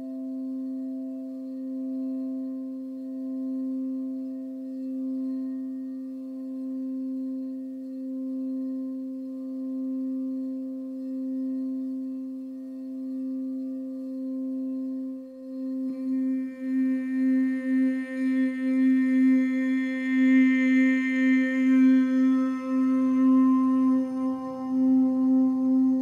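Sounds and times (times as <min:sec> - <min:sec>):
crystal singing bowl tone: 0:00.0 - 0:26.0.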